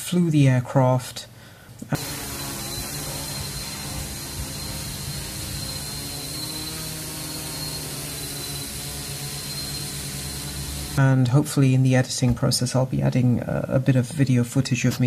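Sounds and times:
quadcopter hovering hum: 1.9s - 11.0s.

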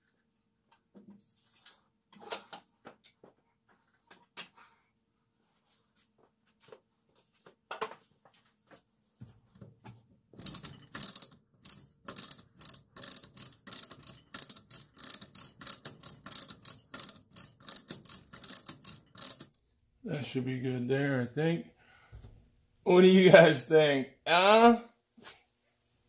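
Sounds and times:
ratchet clicking: 10.4s - 19.6s.

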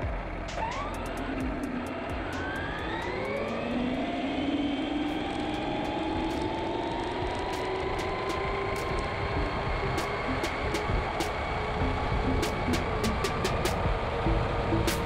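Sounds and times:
electric motor whine: 0.0s - 15.0s
tyres rushing on asphalt: 0.0s - 15.0s
sharp ticks: 5.1s - 9.1s, 9.8s - 13.9s.

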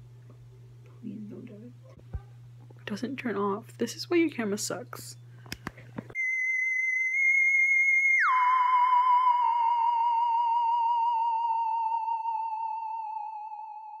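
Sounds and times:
electronic sliding tone: 6.2s - 14.0s.

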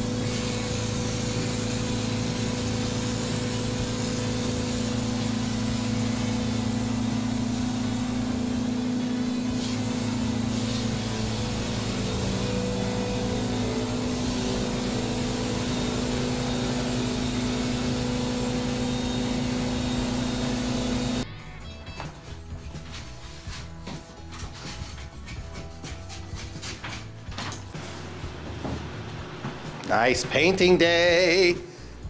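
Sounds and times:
texture sprayer humming and hissing: 0.0s - 21.2s.

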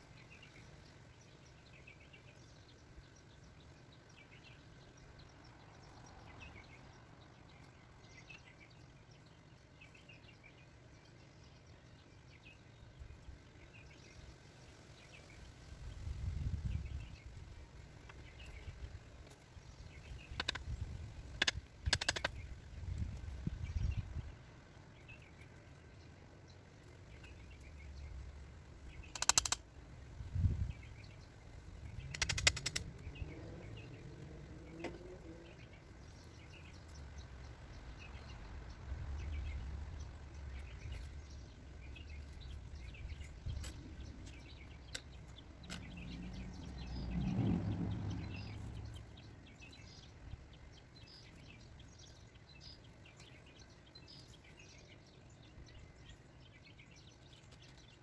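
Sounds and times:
small birds chirping: 0.0s - 58.0s
low rumble: 29.9s - 51.0s.

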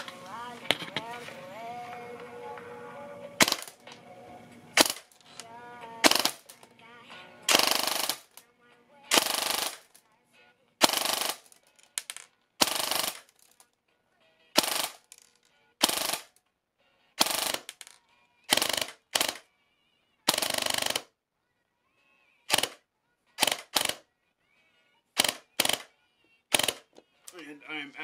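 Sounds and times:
airsoft gun firing bursts: 3.4s - 3.9s, 4.8s - 6.6s, 7.5s - 8.4s, 9.1s - 10.0s, 10.8s - 13.6s, 14.6s - 15.2s, 15.8s - 16.4s, 17.2s - 17.9s, 18.5s - 19.4s, 20.3s - 21.1s, 22.5s - 22.8s, 23.4s - 24.1s, 25.2s - 25.9s, 26.5s - 26.9s.

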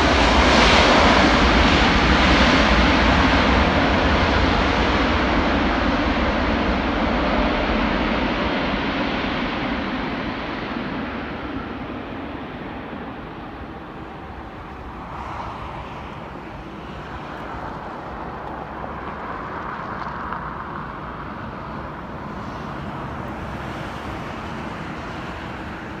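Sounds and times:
aircraft engine hum: 0.0s - 26.0s
rolling rumble: 13.5s - 23.5s.

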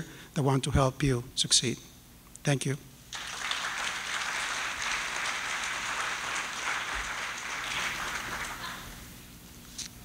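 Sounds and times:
audience applauding: 3.1s - 9.1s.

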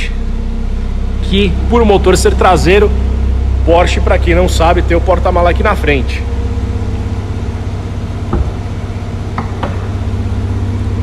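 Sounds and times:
steady low hum: 0.0s - 11.0s
trunk lid knock: 8.3s - 10.0s.

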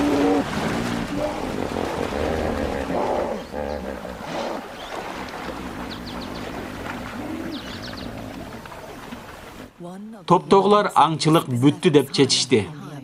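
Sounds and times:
animal low grunting calls: 0.0s - 8.9s.

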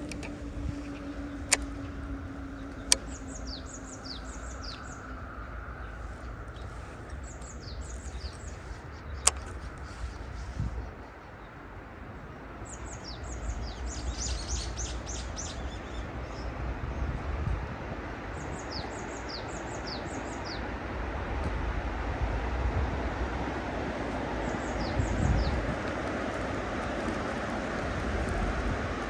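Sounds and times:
small birds chirping: 0.0s - 11.5s
sharp click: 1.5s - 1.8s, 9.2s - 10.5s.

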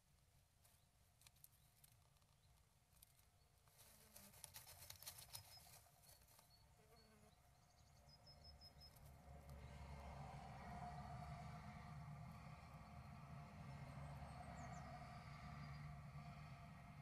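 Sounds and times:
bird scratching nest material: 3.7s - 6.4s.

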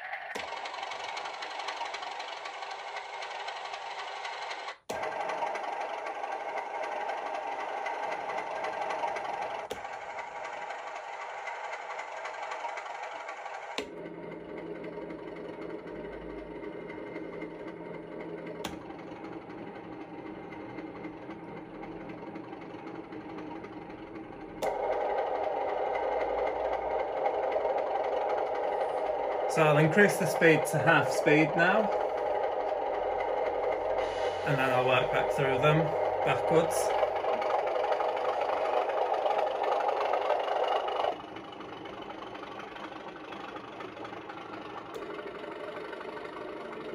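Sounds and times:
diesel locomotive idling: 0.0s - 46.9s.

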